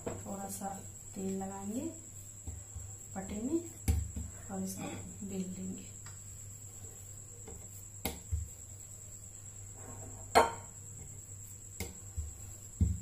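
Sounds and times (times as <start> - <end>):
rolling pin knocking on board: 11.8 - 13.0.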